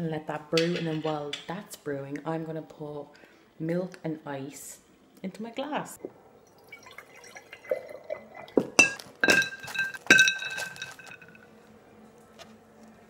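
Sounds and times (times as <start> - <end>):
milk pouring into glass jar: 6.4 - 11.4
ice cubes clinking against glass: 6.8 - 11.5.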